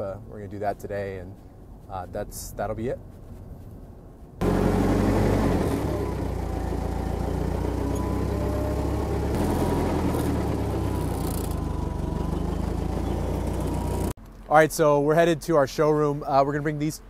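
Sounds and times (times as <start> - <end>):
forklift engine running: 4.4 - 14.2.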